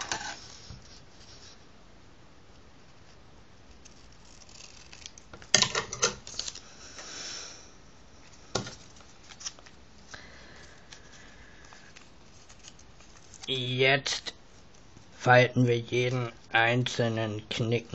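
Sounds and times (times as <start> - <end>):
scissors snipping paper: 3.7 - 5.5
paper rustling: 8.2 - 9.8, 10.6 - 13.7.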